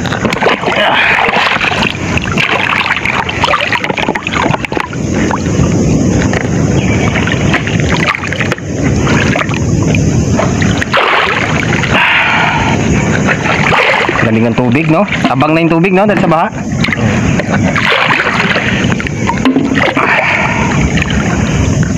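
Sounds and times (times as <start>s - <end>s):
floodwater sloshing and splashing: 0.0s - 21.9s
low rush of water: 0.0s - 21.9s.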